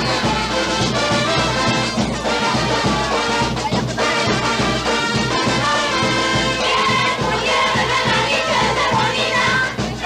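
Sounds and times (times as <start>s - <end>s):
brass band music: 0.0s - 10.0s
steady drum beat: 0.0s - 10.0s.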